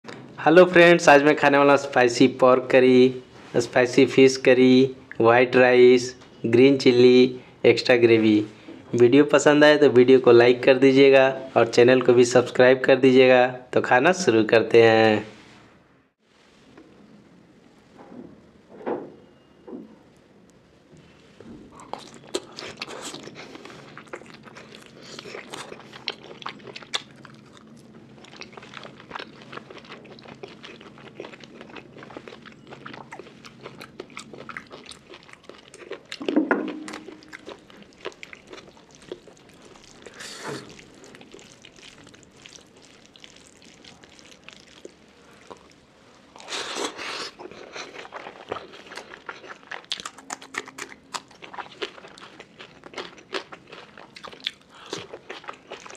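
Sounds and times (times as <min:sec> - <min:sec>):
chewing and crunching: 0:21.7 - 0:55.9.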